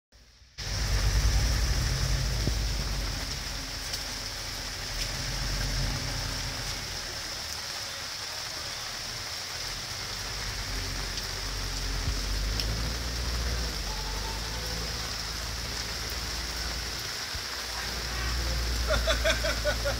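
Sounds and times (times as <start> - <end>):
low rumble: 0.2 - 7.2, 9.9 - 17.5
rain on pavement and awning: 0.2 - 19.9.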